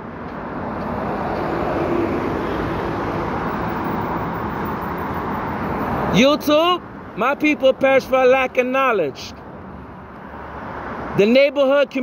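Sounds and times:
vehicle running close by: 0.0 - 6.2.

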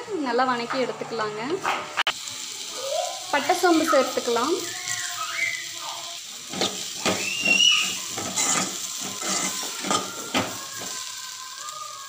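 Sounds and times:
spoon scraping metal pan: 6.5 - 10.9.

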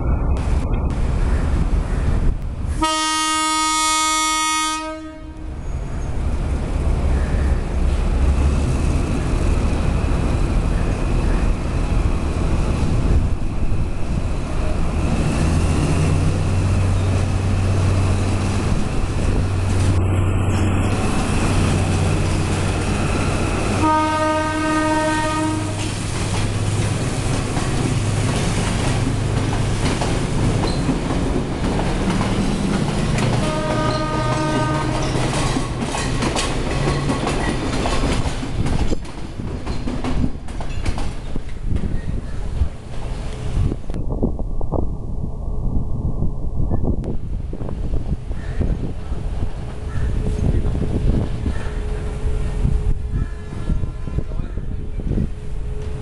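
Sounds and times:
train carriages rumbling: 0.0 - 56.0
locomotive horn blast: 2.8 - 5.6, 23.2 - 26.0, 33.3 - 35.2.

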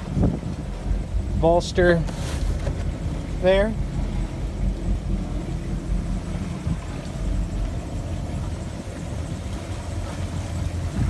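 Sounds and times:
boat engine rumbling: 0.0 - 11.0.

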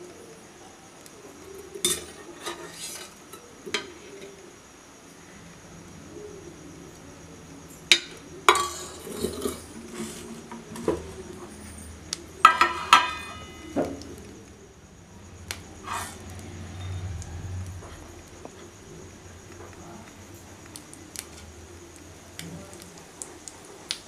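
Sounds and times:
metal utensils clinking: 1.8 - 3.9, 8.5 - 14.0.

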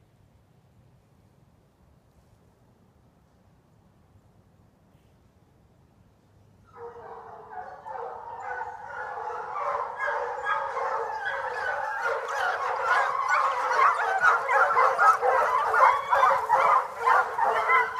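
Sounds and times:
hounds baying and yelping: 6.7 - 17.9.

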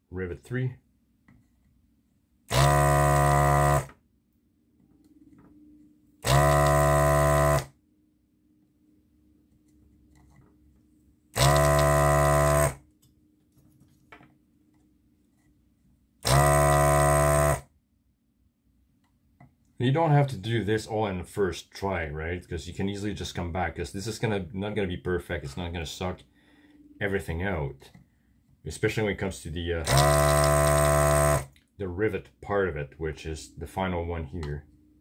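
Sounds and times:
desoldering pump buzzing: 2.5 - 3.9, 6.2 - 7.7, 11.3 - 12.8, 16.2 - 17.6, 29.8 - 31.5.

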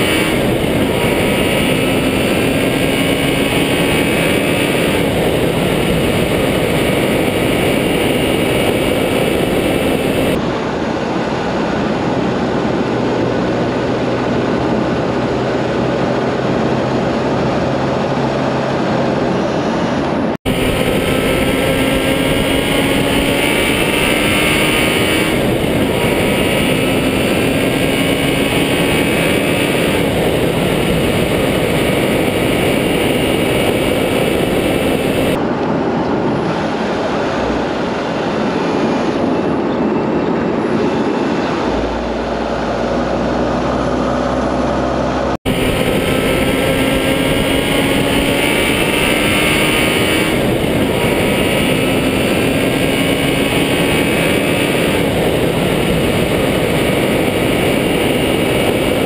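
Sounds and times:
wind and road noise: 0.0 - 59.0.

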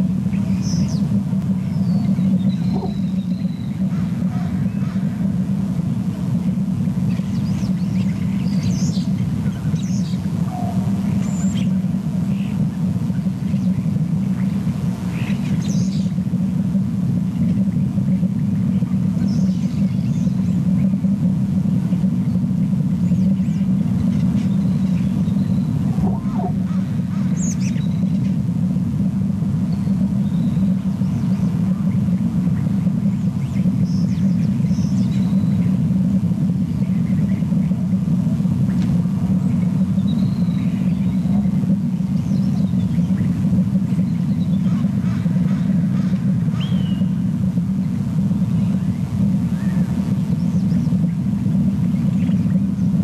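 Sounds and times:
steady low rumble: 0.0 - 53.0
faint bird chirps: 0.3 - 5.0, 22.3 - 28.1, 46.5 - 47.1.

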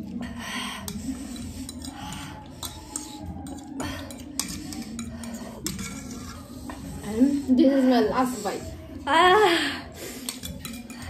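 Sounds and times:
utensils clinking against bowls: 0.8 - 8.8, 9.8 - 11.0.

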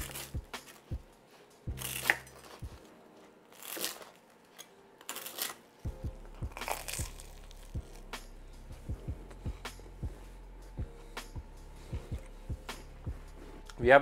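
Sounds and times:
knife crunching through toasted bread: 0.0 - 0.8, 1.7 - 2.9, 3.5 - 5.7, 6.4 - 8.1
background music with steady beat: 0.0 - 14.0.

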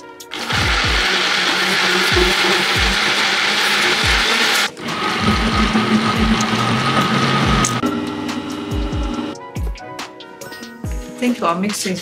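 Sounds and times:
blender running: 0.3 - 9.4.

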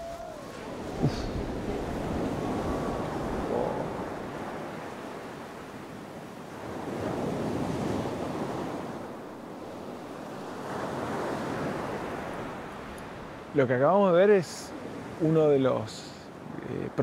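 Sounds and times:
wind on microphone: 0.0 - 13.5
rushing churning water: 0.0 - 17.0.

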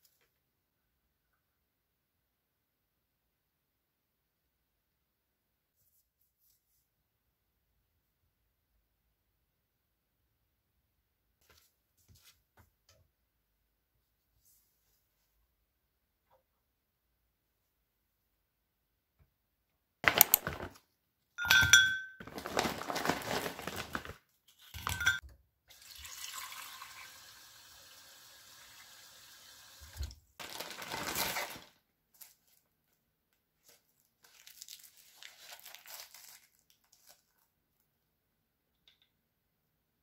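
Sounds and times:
tap water filling a glass: 25.7 - 27.4.

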